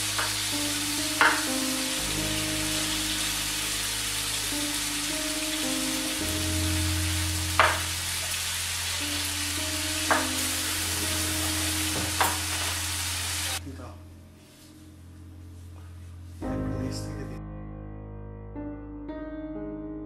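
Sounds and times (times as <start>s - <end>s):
chicken sizzling in a pan: 0.0s - 13.6s
spatula tapping a pan: 7.6s - 7.9s, 10.1s - 10.4s.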